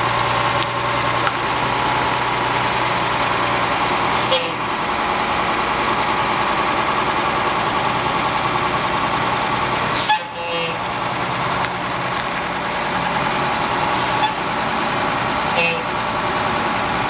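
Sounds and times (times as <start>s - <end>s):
diesel truck engine running: 0.0s - 17.0s
air brakes hissing: 4.1s - 4.6s, 9.9s - 10.8s, 13.8s - 14.4s.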